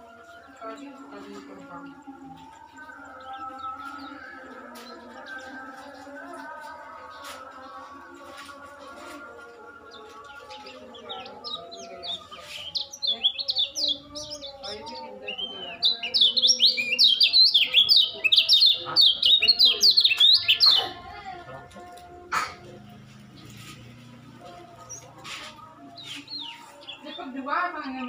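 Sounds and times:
bird twittering song: 9.7s - 21.0s, 23.2s - 28.0s.

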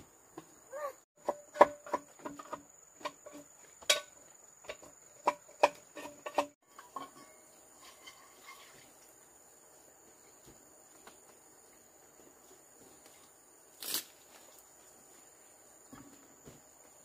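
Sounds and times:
sharp knocks and clatter: 1.2s - 8.8s.

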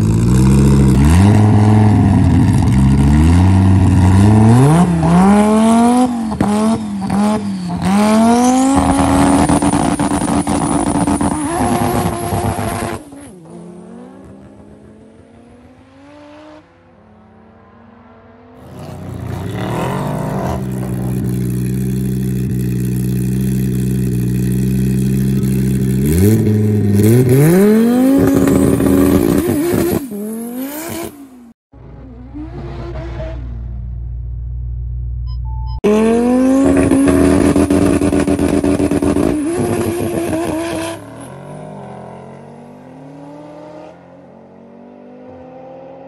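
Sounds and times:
racing engines revving: 0.0s - 33.8s
drag racing car passing: 0.0s - 34.8s.

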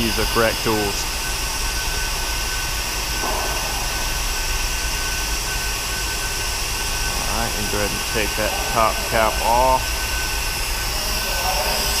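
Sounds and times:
high whine: 0.0s - 12.0s
workshop hum and hiss: 0.0s - 12.0s
low drone: 3.1s - 12.0s.

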